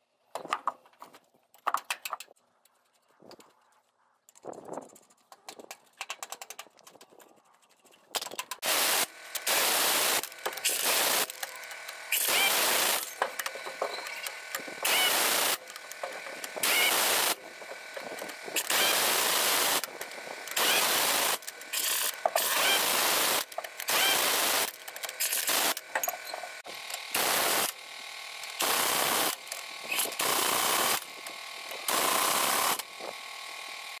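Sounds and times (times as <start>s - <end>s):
pneumatic impact wrench hammering: 8.1s - 34.0s.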